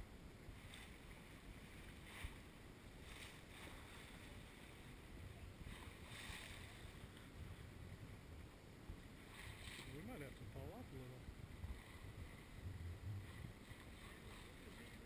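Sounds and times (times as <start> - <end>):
water splashing along hull: 0.0 - 15.0
wind rumble on microphone: 0.0 - 15.0.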